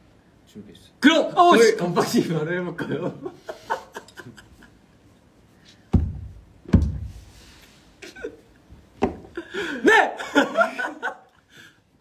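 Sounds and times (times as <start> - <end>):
dull thumps: 5.9 - 7.3.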